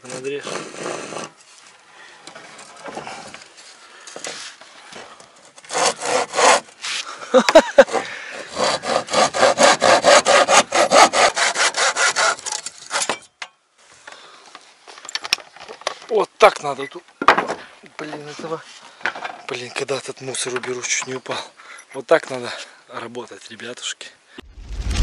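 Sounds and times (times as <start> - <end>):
handsaw cutting wood: 0.0 - 1.4, 5.6 - 7.1, 7.7 - 13.1.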